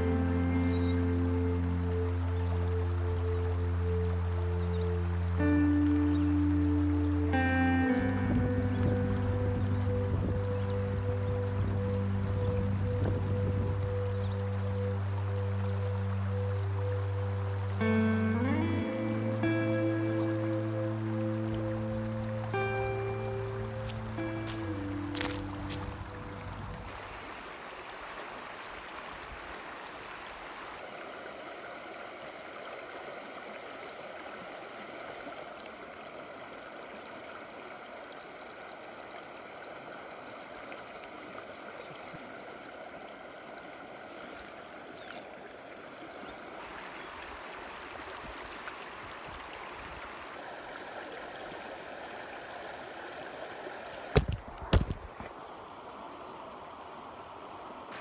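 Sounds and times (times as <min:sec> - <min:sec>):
creek water rushing and gurgling: 0:00.0 - 0:58.0.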